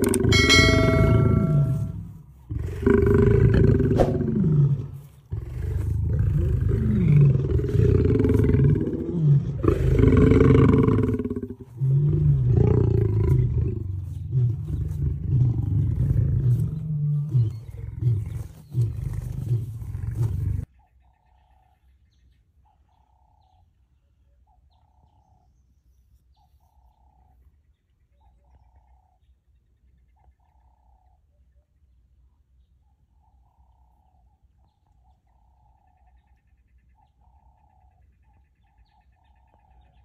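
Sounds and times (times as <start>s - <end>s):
lion roaring: 0.0s - 20.7s.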